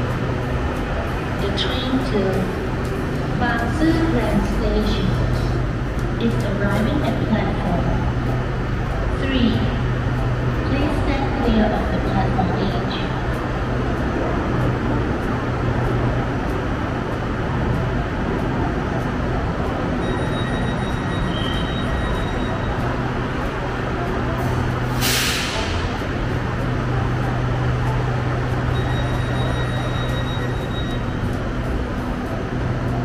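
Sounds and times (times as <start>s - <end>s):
electric train rumble and hum: 0.0s - 33.0s
hiss of released air: 24.9s - 25.8s.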